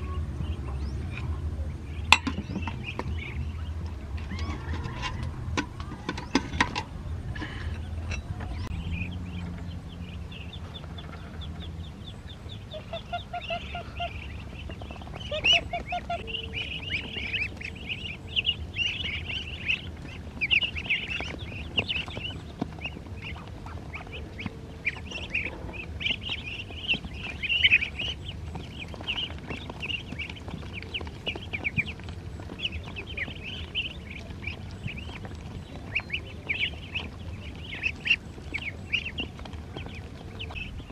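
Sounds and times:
adult ducks calling: 0.0s - 40.9s
ducklings peeping: 0.0s - 40.9s.

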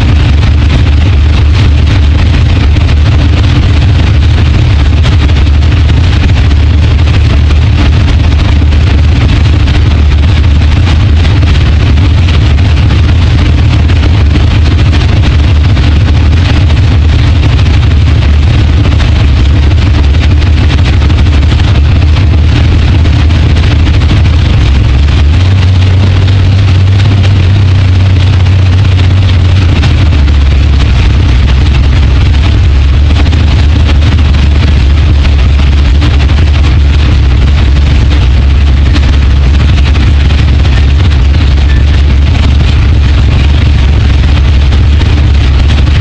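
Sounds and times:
car engine idling loud: 0.0s - 46.0s.

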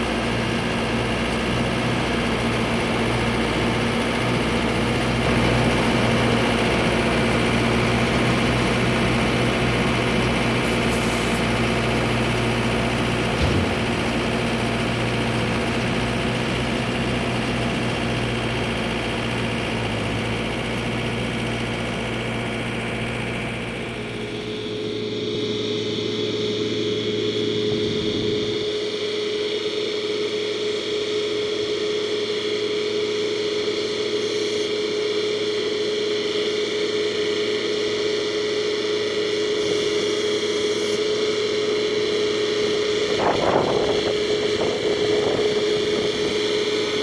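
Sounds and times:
tractor diesel engine running: 0.0s - 47.0s
tractor engine whine: 0.0s - 47.0s
baler tailgate knock: 13.3s - 14.2s.

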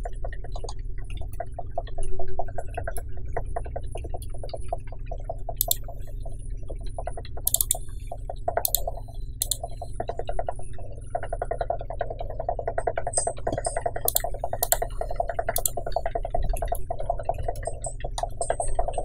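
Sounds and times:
mouse clicks: 5.6s - 5.9s, 7.5s - 7.8s, 8.6s - 9.6s, 14.1s - 14.9s, 15.6s - 15.9s
keyboard typing: 5.6s - 6.0s, 7.4s - 7.9s, 8.5s - 9.9s, 13.2s - 16.1s.

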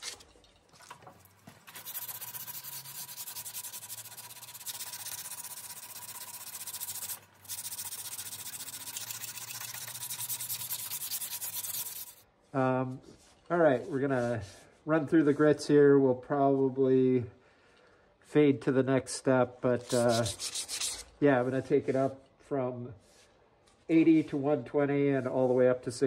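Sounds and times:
wood lathe spinning: 1.0s - 12.2s
sandpaper scraping spinning wood: 1.5s - 12.2s, 19.8s - 21.1s.

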